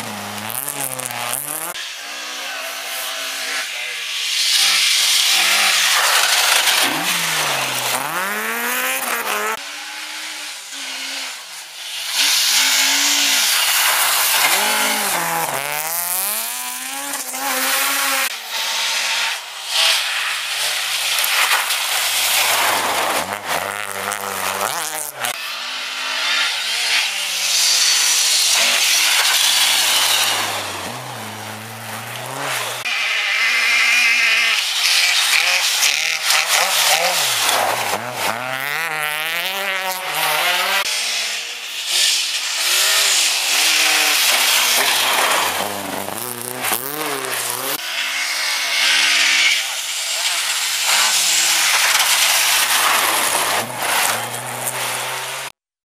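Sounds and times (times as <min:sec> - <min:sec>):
rally car engines revving: 0:00.0 - 0:55.6
tyres hissing on snowy road: 0:00.0 - 0:55.6.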